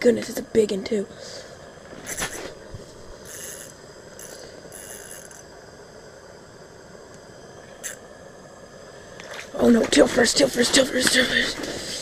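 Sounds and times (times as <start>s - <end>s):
fishing reel reeling: 2.0s - 2.6s, 3.2s - 5.5s, 7.8s - 8.0s
short high buzzes of reel: 3.2s - 5.4s
sharp click of reel: 3.2s - 5.5s.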